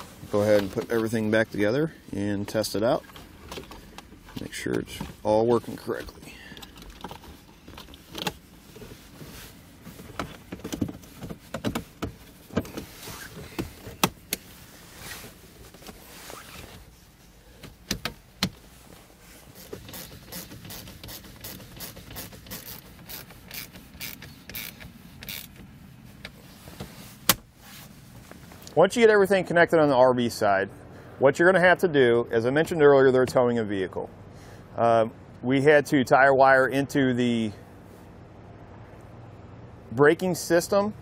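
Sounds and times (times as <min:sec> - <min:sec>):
small ratchet clicking: 0:19.9 - 0:25.6.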